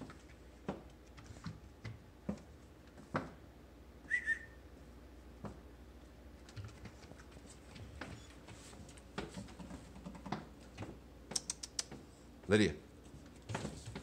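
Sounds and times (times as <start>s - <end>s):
puppy paws tapping on mat: 0.0s - 3.4s, 6.4s - 14.0s.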